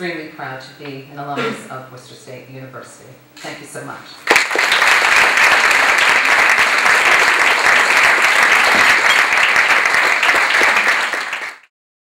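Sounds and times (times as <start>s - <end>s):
audience applauding: 4.2s - 11.7s.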